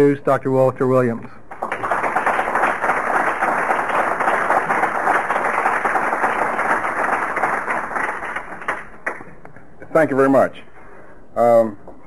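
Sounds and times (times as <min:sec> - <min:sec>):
audience applauding: 0:01.5 - 0:09.4.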